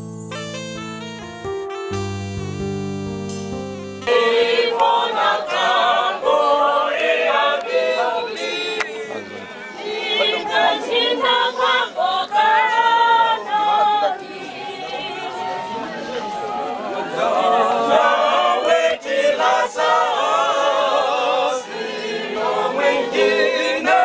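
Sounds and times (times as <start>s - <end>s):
long held keyboard notes: 0.0s - 6.0s
choir singing unaccompanied: 4.0s - 15.9s, 16.8s - 24.0s.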